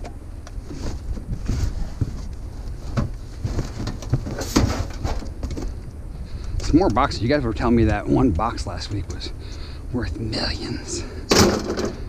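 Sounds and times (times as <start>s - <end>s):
boxes knocking and clunking: 0.0s - 5.8s, 11.3s - 12.0s
steady low rumble: 0.0s - 12.0s.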